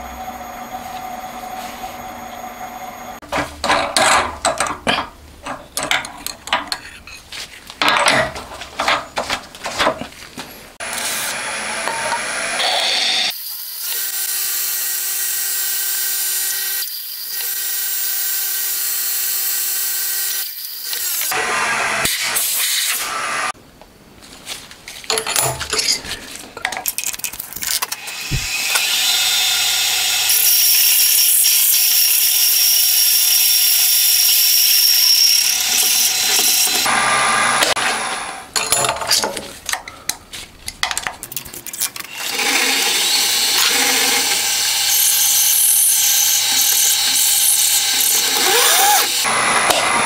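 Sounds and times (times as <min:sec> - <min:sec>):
milling machine whining: 0:00.0 - 0:03.2, 0:42.1 - 0:50.0.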